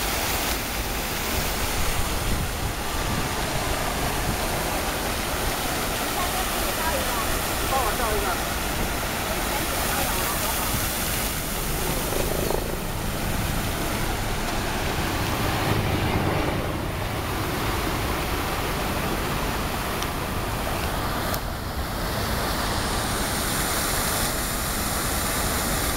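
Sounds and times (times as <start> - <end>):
fountain jets splashing into pool: 0.0 - 16.1, 16.8 - 25.9
city traffic: 0.0 - 24.2.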